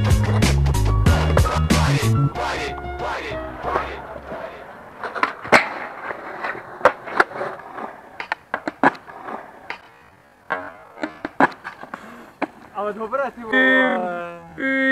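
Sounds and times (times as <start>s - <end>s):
skateboard wheels rolling on concrete: 0.0s - 14.9s
skateboard clacking on ground: 3.6s - 13.6s.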